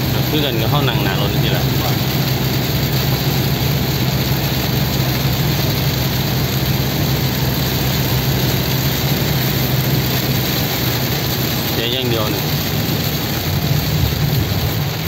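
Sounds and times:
engine and road drone: 0.0s - 15.0s
rain hitting car roof: 0.0s - 15.0s.

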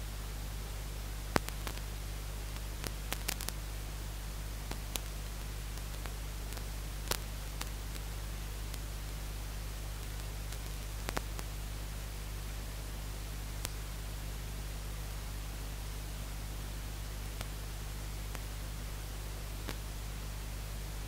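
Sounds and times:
static hiss with low hum: 0.0s - 21.0s
sharp clicks and crackles: 1.3s - 1.9s, 2.5s - 3.6s, 4.6s - 8.9s, 10.0s - 11.5s, 19.6s - 19.9s.

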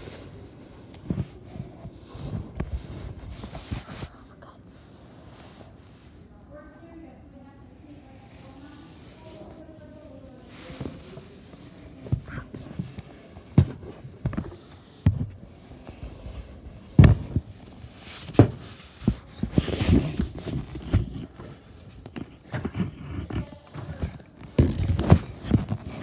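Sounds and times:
fabric rustling on microphone: 0.0s - 6.2s, 10.3s - 15.0s, 15.6s - 26.0s
knocks and thumps: 13.5s - 15.4s, 16.8s - 21.3s.

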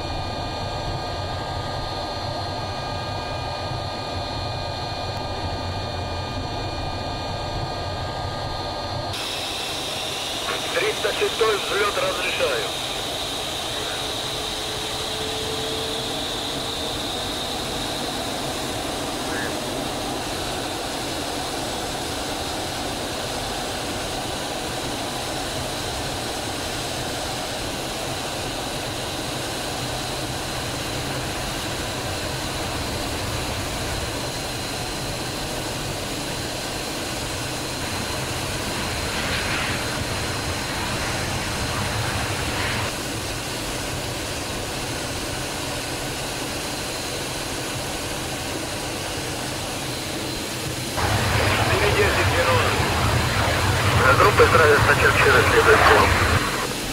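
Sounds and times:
jet engine rush and whine: 0.0s - 56.9s.

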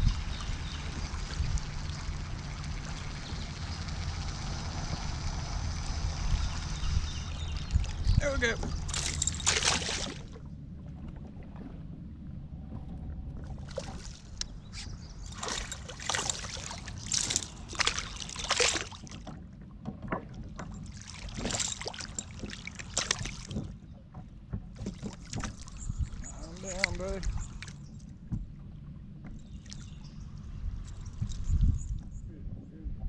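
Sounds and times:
water splashing by kayak: 0.0s - 32.2s
low rumble of moving water: 0.0s - 33.0s.

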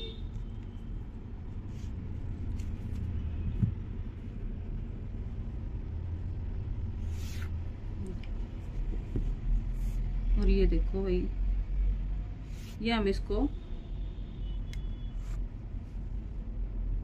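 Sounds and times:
soft knock: 3.5s - 3.9s
scraping rustle on cloth: 9.6s - 10.1s.

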